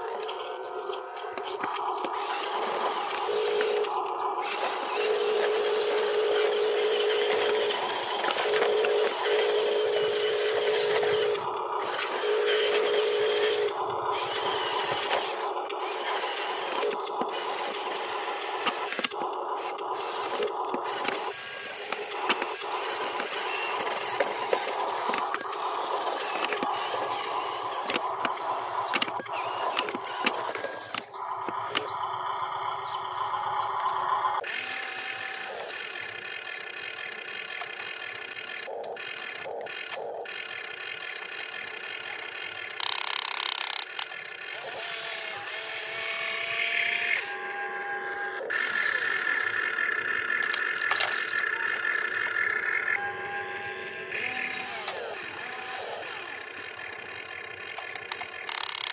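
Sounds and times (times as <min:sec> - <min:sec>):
electric motor whirring: 0:00.0 - 0:58.9
wheels scraping dirt and leaves: 0:01.2 - 0:18.3, 0:48.6 - 0:58.9.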